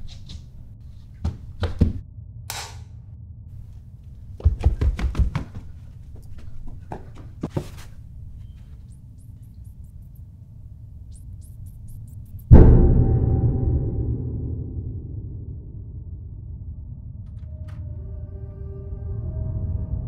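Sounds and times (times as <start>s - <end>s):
footsteps on stairs: 0.0s - 2.0s, 4.2s - 8.9s.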